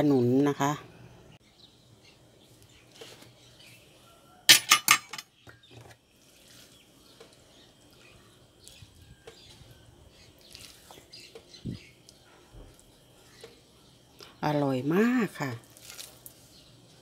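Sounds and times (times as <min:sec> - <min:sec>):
metal spoon clinking on plate: 0:04.5 - 0:05.3.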